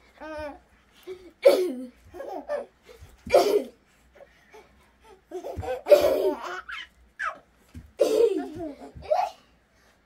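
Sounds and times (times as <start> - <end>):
baby laughing and squealing: 5.4 - 7.4.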